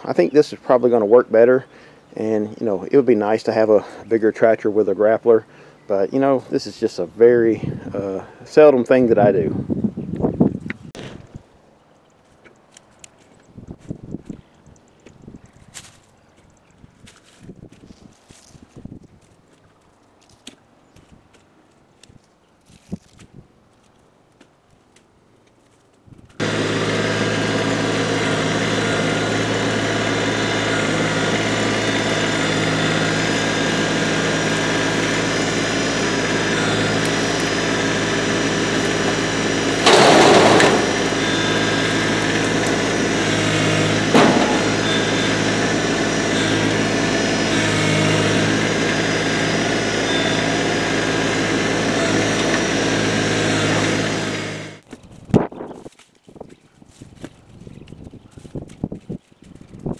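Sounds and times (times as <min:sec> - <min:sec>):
tractor diesel engine running: 0:26.4 - 0:54.8
brush crashing onto trailer: 0:36.1 - 0:47.0.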